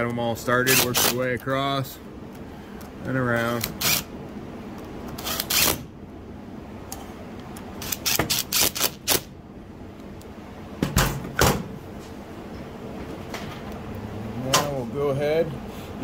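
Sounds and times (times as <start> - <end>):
cordless drill driving screws: 3.6 - 4.1, 5.2 - 5.8, 7.8 - 9.2.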